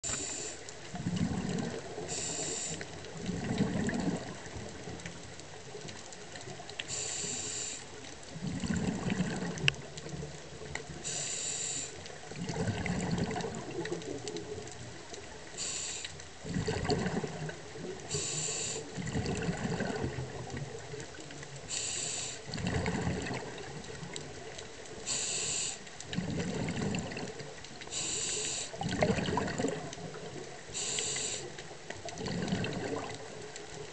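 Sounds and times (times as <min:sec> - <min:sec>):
regulator hiss on inhale: 0:00.0 - 0:00.7, 0:02.0 - 0:03.0, 0:06.8 - 0:08.0, 0:11.0 - 0:12.0, 0:15.6 - 0:16.2, 0:18.1 - 0:19.0, 0:21.6 - 0:22.5, 0:25.0 - 0:25.9, 0:27.9 - 0:28.8, 0:30.7 - 0:31.6
exhaust bubbles: 0:00.9 - 0:02.1, 0:03.1 - 0:04.9, 0:08.3 - 0:09.8, 0:12.3 - 0:14.6, 0:16.4 - 0:18.1, 0:18.9 - 0:20.8, 0:22.5 - 0:24.4, 0:26.0 - 0:27.6, 0:28.8 - 0:30.4, 0:32.0 - 0:33.9.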